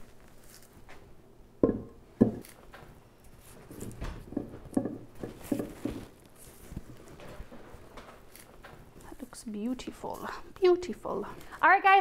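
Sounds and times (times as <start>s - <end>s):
hands rustling in soil: 0.0s - 0.9s, 5.4s - 10.2s
heavy pot knocking on stone: 1.6s - 2.4s, 4.2s - 6.1s.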